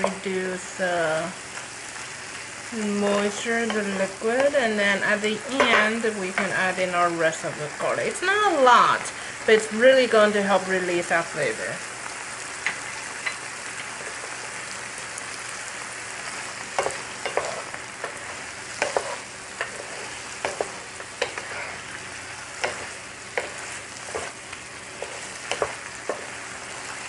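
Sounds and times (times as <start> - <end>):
shrimp sizzling in frying pan: 0.0 - 27.0
wooden spatula scraping pan: 16.8 - 22.0, 22.6 - 24.4, 25.0 - 26.4.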